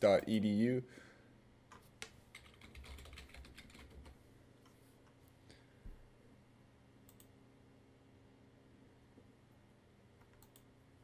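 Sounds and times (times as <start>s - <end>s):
faint typing on keyboard: 1.7s - 4.8s, 10.2s - 10.8s.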